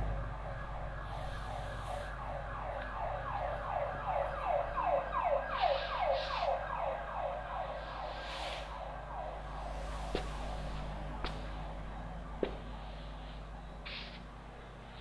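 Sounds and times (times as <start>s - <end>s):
siren-like falling tones: 0.0s - 14.3s
short hisses: 7.8s - 8.7s, 13.8s - 14.2s.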